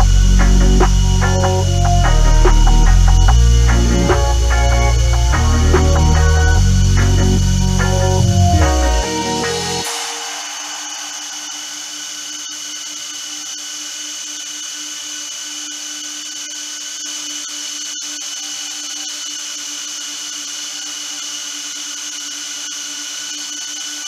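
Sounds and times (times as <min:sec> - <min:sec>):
cooling fans whirring: 0:00.0 - 0:15.2.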